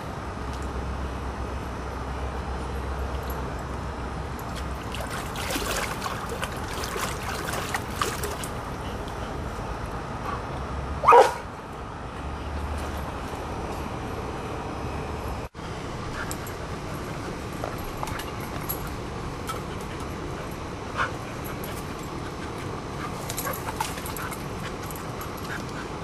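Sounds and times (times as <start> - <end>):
dog barking: 11.0 - 11.5.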